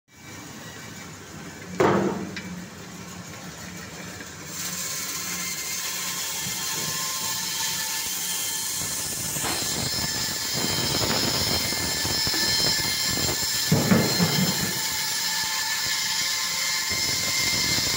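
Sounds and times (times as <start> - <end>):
band saw humming: 4.5 - 17.9
saw blade grating through frozen fish: 4.5 - 17.9.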